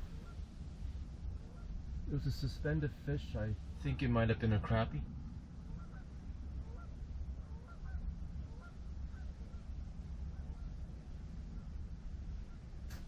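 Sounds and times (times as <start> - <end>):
honking bird calls: 0.0 - 0.5, 1.4 - 1.8, 5.6 - 11.8
low rumble: 0.0 - 13.0.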